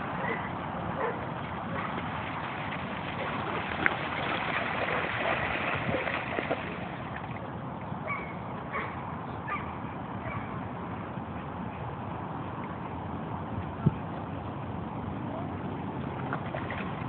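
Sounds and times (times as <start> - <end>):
dog splashing through puddle: 1.8 - 7.4.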